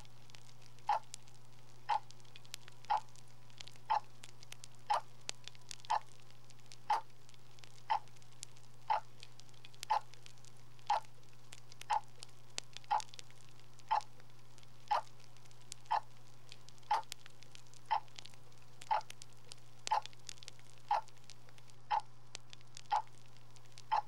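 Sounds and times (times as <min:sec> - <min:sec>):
constant low hum: 0:00.0 - 0:24.0
clock ticking: 0:00.8 - 0:01.1, 0:01.8 - 0:04.1, 0:04.8 - 0:05.1, 0:05.8 - 0:06.2, 0:06.8 - 0:07.1, 0:07.9 - 0:08.2, 0:08.9 - 0:09.1, 0:09.7 - 0:10.2, 0:10.9 - 0:11.1, 0:11.8 - 0:12.2, 0:12.8 - 0:13.2, 0:13.9 - 0:14.1, 0:14.9 - 0:15.2, 0:15.8 - 0:16.1, 0:16.9 - 0:17.2, 0:17.8 - 0:18.2, 0:18.8 - 0:19.2, 0:19.8 - 0:20.2, 0:20.9 - 0:21.2, 0:21.9 - 0:22.1, 0:22.8 - 0:24.0.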